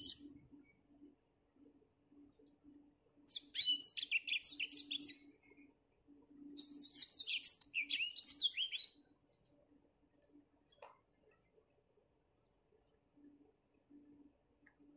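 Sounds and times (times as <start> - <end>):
canary singing twittering phrases: 0.0 - 0.3, 3.3 - 5.3, 6.5 - 9.0.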